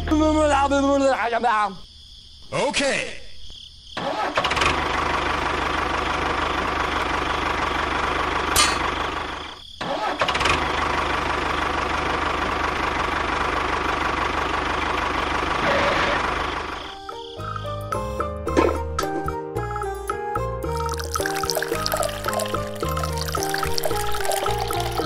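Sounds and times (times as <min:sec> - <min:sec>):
tractor engine running: 0:04.2 - 0:16.9.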